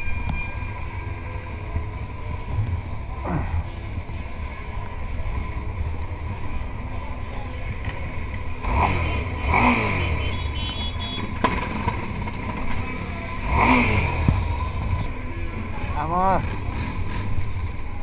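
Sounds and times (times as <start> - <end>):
motorcycle engines running: 0.0 - 18.0
motorcycle throttle blips: 7.8 - 12.8.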